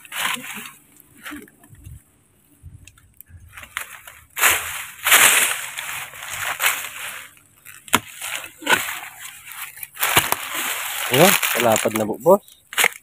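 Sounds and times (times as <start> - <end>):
shovel scraping into dry soil: 3.5 - 11.9.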